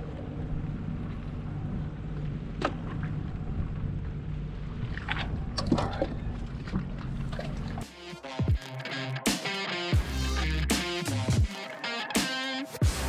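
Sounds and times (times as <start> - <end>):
watercraft engine running: 0.0 - 8.4
water washing along hull: 2.6 - 7.9.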